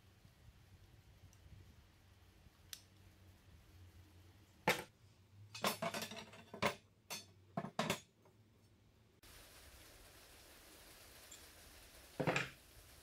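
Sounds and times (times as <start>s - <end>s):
metal clinks and knocks: 5.5s - 8.1s.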